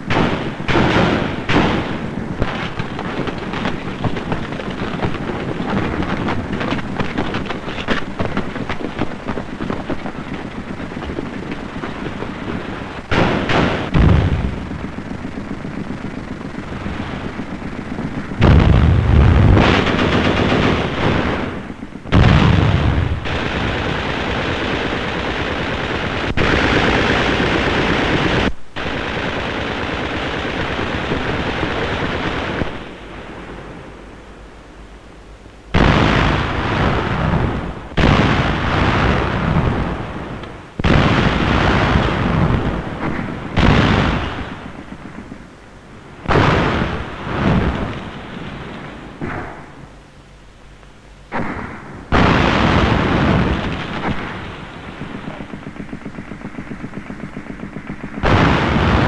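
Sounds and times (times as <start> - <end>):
deep loud bangs: 0.0 - 25.3, 35.7 - 45.6, 46.2 - 50.0, 51.3 - 59.0
machine-gun fire: 0.0 - 33.8, 35.7 - 50.0, 51.3 - 59.0.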